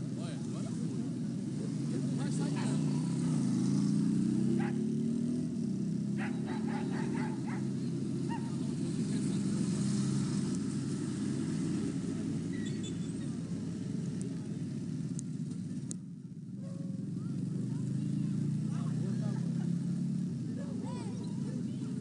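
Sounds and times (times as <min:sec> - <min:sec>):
low engine rumble: 0:00.0 - 0:22.0
dog barking: 0:04.6 - 0:04.8, 0:06.2 - 0:07.7, 0:08.3 - 0:08.6, 0:20.6 - 0:20.9.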